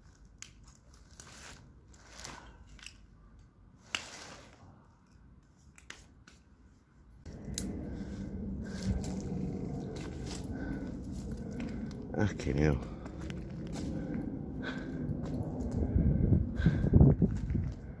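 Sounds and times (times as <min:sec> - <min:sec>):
low rumble: 0:07.2 - 0:18.0
rubble crunching underfoot: 0:07.3 - 0:15.9.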